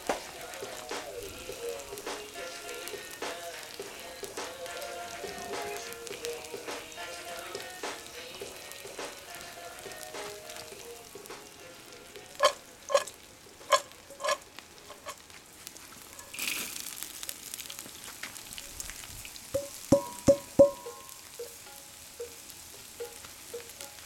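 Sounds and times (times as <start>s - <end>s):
meat and onions sizzling in oil: 0.0s - 24.0s
bowl clanking against pot: 19.6s - 21.5s.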